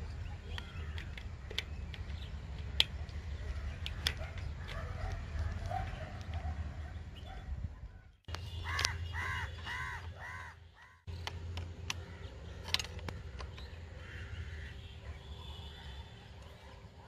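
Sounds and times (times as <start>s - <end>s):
crow cawing: 8.7s - 11.0s, 14.0s - 14.8s.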